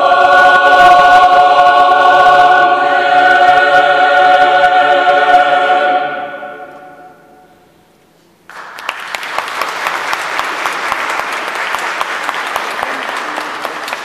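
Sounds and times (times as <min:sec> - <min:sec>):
choir singing chord: 0:00.0 - 0:07.5
audience applause: 0:08.5 - 0:14.0.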